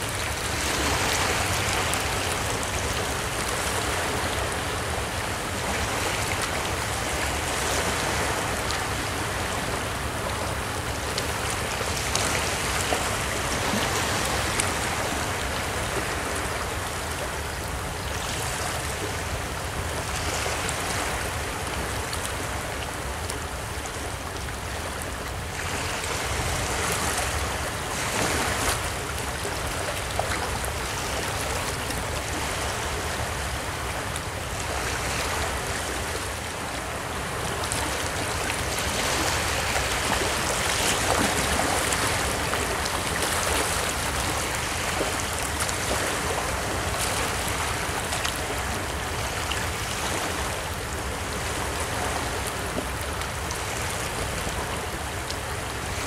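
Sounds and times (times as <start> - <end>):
small waves washing over rocks: 23.9 - 56.0.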